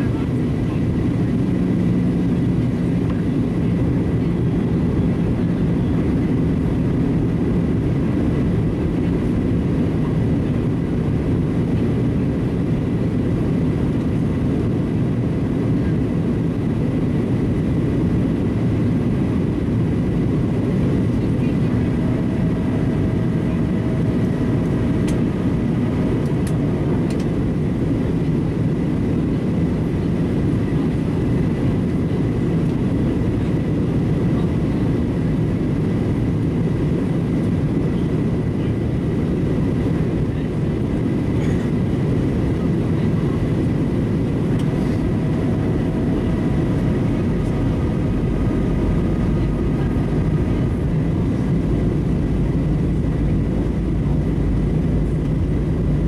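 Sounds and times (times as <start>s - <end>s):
jet engines droning: 0.0s - 56.0s
airflow rushing: 41.8s - 56.0s.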